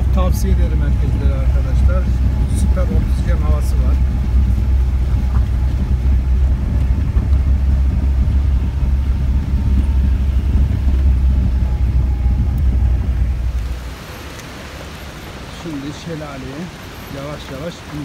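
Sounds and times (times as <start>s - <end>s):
vehicle rumbling over cobblestones: 0.0s - 18.0s.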